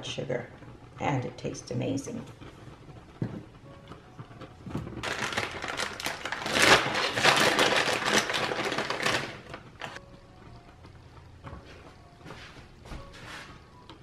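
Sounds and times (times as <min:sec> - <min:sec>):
plastic bag crinkling: 0:04.7 - 0:10.0.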